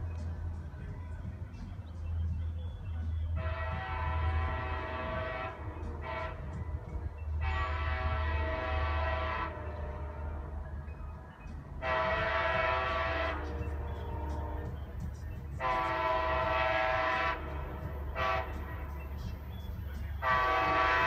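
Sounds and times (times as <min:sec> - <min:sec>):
train horn blasts: 0:03.2 - 0:10.8, 0:11.8 - 0:21.0.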